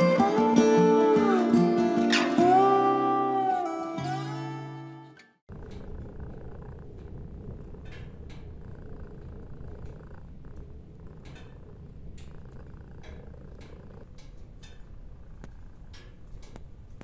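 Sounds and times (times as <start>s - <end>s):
cat purring: 5.5s - 17.0s
faint clicks: 5.5s - 17.0s.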